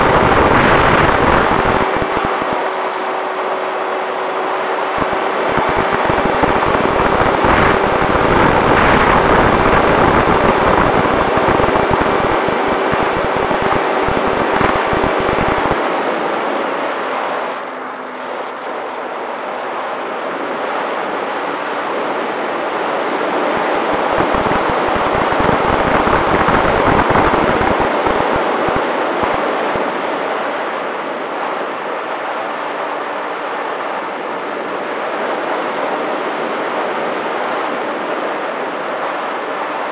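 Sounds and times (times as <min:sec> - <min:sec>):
electric motor and propeller hum: 0:00.0 - 0:02.7, 0:04.9 - 0:15.9
wind buffeting microphone: 0:00.0 - 0:03.1, 0:04.6 - 0:17.6, 0:20.3 - 0:30.3.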